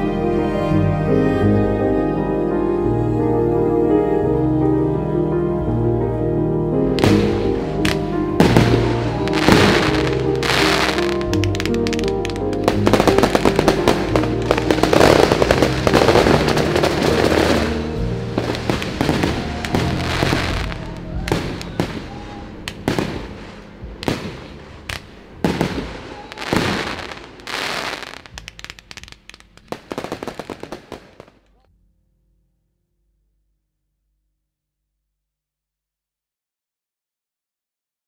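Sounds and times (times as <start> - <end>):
music: 0.0 - 34.3
firework bangs: 7.0 - 31.6
firework crackling: 7.0 - 31.6.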